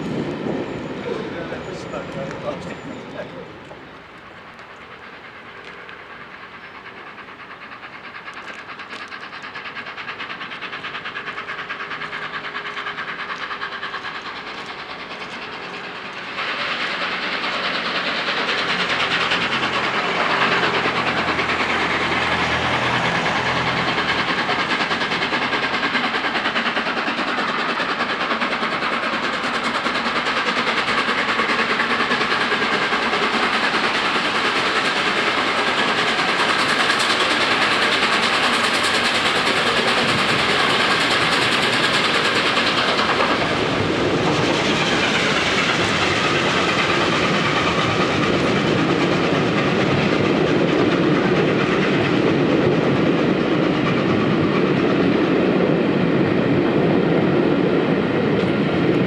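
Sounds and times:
steam train approaching: 0:00.0 - 0:59.0.

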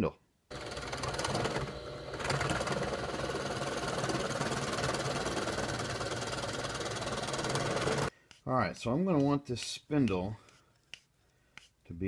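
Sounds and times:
drill bit cutting wood: 0:00.5 - 0:08.1
drill press motor hum: 0:00.5 - 0:08.1.

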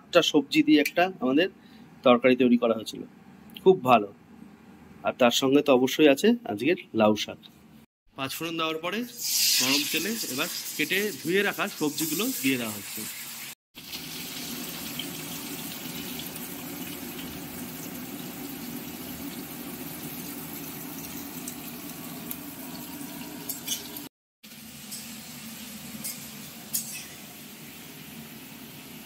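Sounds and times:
vegetables sizzling in hot oil: 0:09.2 - 0:29.0.

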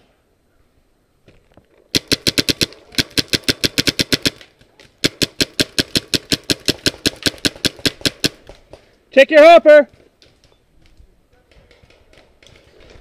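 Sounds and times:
paintball marker rapid firing: 0:01.9 - 0:04.4, 0:05.0 - 0:08.8.

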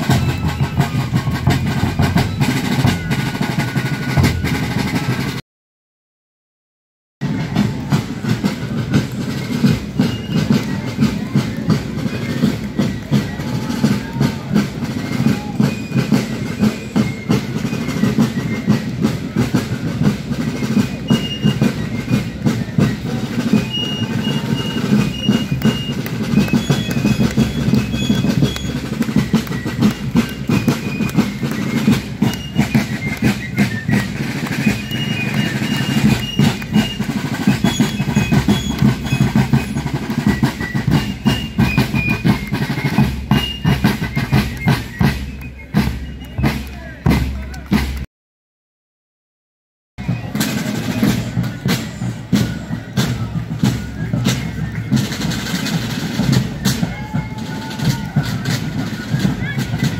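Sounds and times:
snare and bass drums beating: 0:00.0 - 0:05.4, 0:07.2 - 0:48.1, 0:50.0 - 0:59.9.

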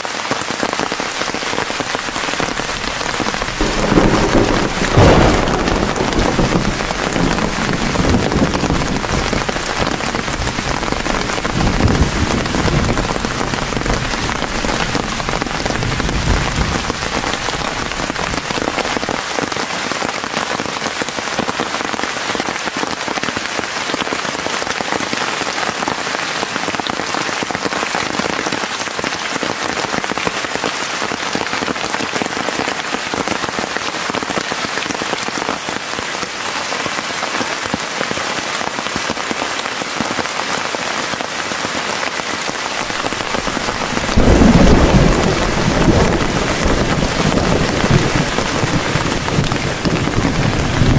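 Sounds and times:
steady rain: 0:00.0 - 0:50.9
low thunder rumble: 0:01.6 - 0:18.4, 0:42.8 - 0:50.9.

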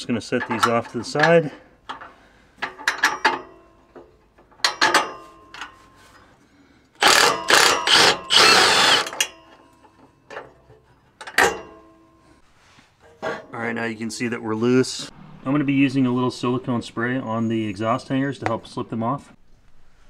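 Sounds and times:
metal clicks and knocks: 0:00.3 - 0:05.8, 0:09.2 - 0:11.9
power tool spinning nut: 0:07.0 - 0:09.3.

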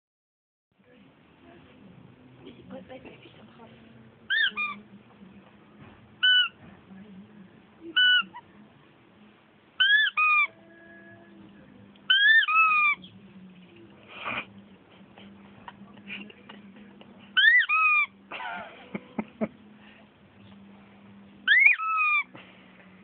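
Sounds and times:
rubber squeaky toy squeaking: 0:04.3 - 0:04.8, 0:06.2 - 0:06.6, 0:07.9 - 0:08.4, 0:09.8 - 0:10.6, 0:12.1 - 0:13.1, 0:17.4 - 0:18.1, 0:21.4 - 0:22.3
soft breathy noise: 0:19.6 - 0:21.3, 0:22.3 - 0:23.0.

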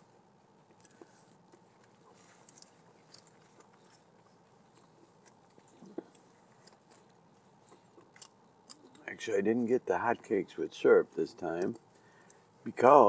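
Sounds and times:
close-up chewing: 0:00.2 - 0:09.1.

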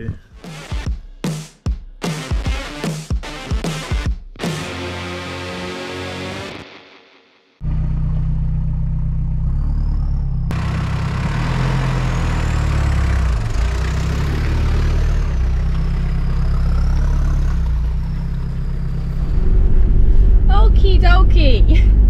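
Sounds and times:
engine low drone: 0:07.6 - 0:22.0.

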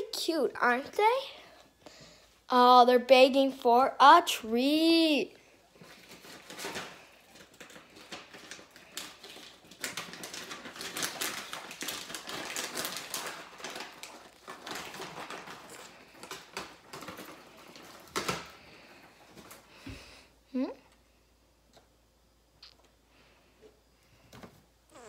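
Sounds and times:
guinea pigs clicking and rustling: 0:06.0 - 0:18.5.

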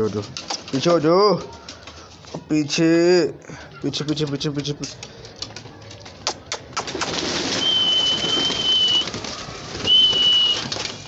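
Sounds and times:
pigeons flapping wings: 0:04.0 - 0:11.0
high whistle-like tones: 0:07.5 - 0:09.2, 0:09.8 - 0:10.9.

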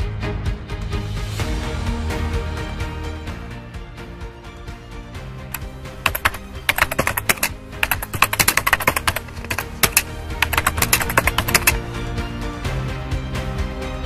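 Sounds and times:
background music: 0:00.0 - 0:14.0
keyboard typing: 0:05.6 - 0:11.8.

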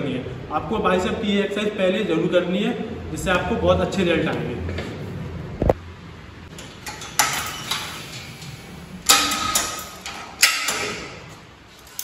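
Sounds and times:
cable machine metal clanks: 0:06.5 - 0:12.0.

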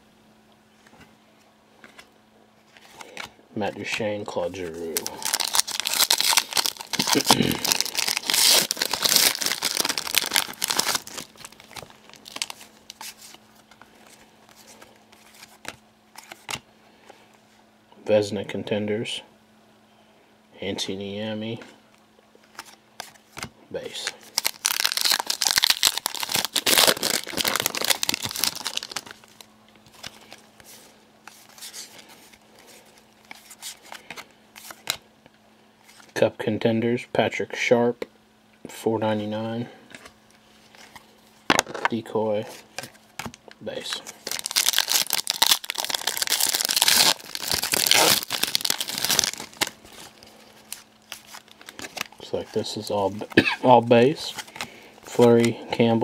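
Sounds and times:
cards rustling and clicking: 0:02.7 - 0:17.2, 0:22.4 - 0:35.0, 0:42.4 - 0:53.4, 0:54.0 - 0:55.6
foil wrapper tearing and crinkling: 0:04.6 - 0:13.4, 0:24.0 - 0:30.4, 0:43.2 - 0:53.4.

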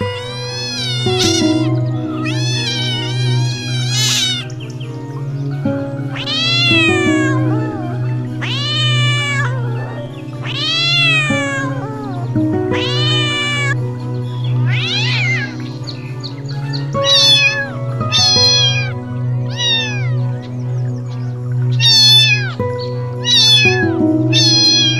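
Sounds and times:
cat meowing: 0:00.0 - 0:04.5, 0:06.1 - 0:13.8, 0:14.7 - 0:15.6, 0:16.6 - 0:20.2, 0:21.8 - 0:22.6, 0:23.2 - 0:24.9
background music: 0:00.0 - 0:24.9.

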